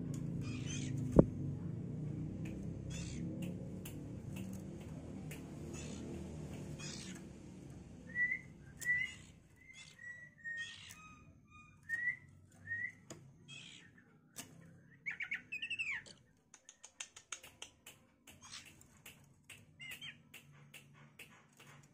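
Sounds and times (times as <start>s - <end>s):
bird ticks: 2.3s - 7.9s, 15.9s - 21.9s.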